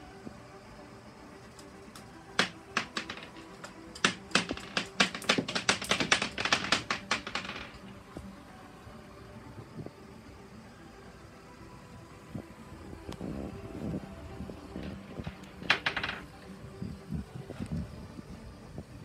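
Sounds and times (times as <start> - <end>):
faint steady hum: 0.0 - 19.0
glass marbles clicking: 2.0 - 7.9, 14.6 - 16.4.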